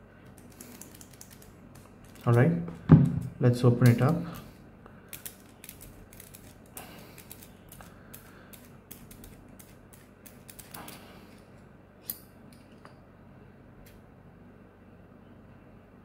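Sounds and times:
pen clicks and ticks: 0.3s - 2.5s, 5.1s - 11.0s.

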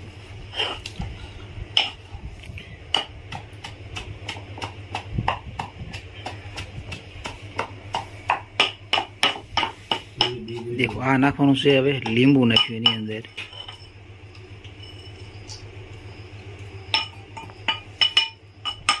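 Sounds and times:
knife tapping steel plates: 8.0s - 11.2s, 12.0s - 13.9s, 16.9s - 19.0s.

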